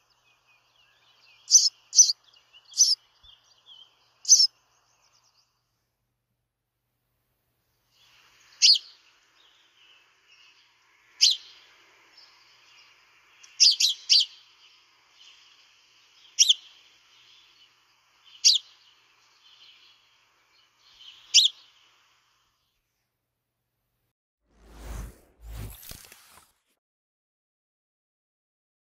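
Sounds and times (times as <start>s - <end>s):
sparrow chirping: 0.0s - 5.6s, 8.0s - 22.2s.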